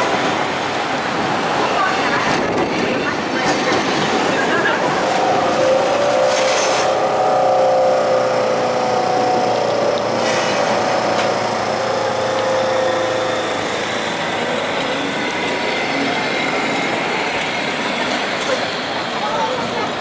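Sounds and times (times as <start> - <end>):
street traffic: 0.0 - 20.0
tram running on tracks: 0.0 - 20.0
steady whine: 4.5 - 18.6.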